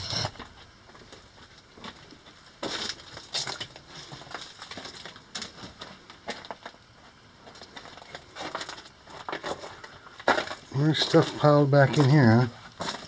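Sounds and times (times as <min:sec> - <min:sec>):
footsteps crunching on gravel: 0:07.4 - 0:13.0.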